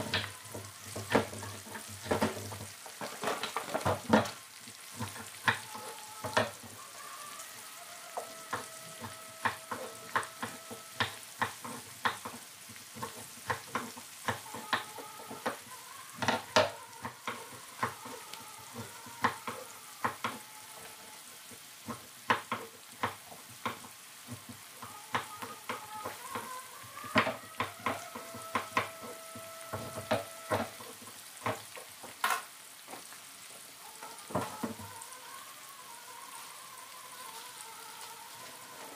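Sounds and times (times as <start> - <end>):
frying in hot oil sizzling: 0.0 - 38.9.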